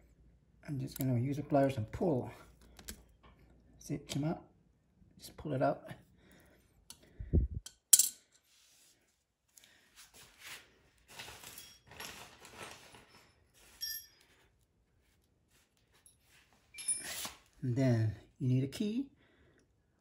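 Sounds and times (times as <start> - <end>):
scraping and rustling of tools: 7.7 - 17.6.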